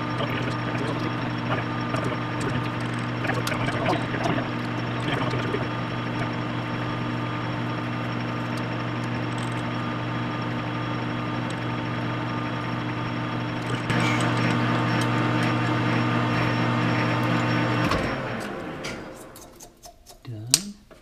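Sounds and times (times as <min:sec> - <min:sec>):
metal lathe humming: 0:00.0 - 0:19.7
small clicks: 0:08.5 - 0:09.8.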